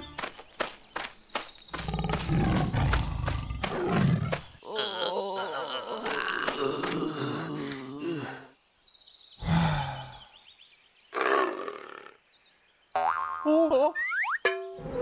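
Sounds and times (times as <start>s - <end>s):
animal growls and snarls: 1.8s - 7.7s, 11.1s - 12.2s.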